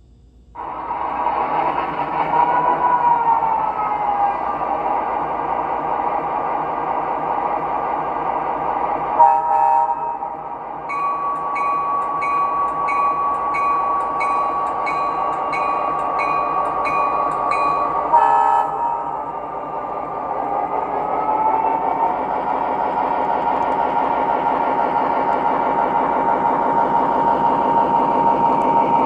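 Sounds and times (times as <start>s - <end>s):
locomotive horn blast: 9.2s - 10.4s, 18.1s - 19.2s
bell ringing steadily: 10.9s - 19.2s.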